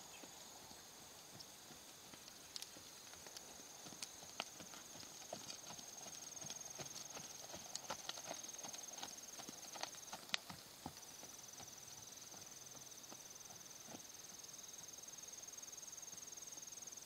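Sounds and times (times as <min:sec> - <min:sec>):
insect trill: 0:00.0 - 0:17.0
horse hoofbeats on sand: 0:00.2 - 0:14.4.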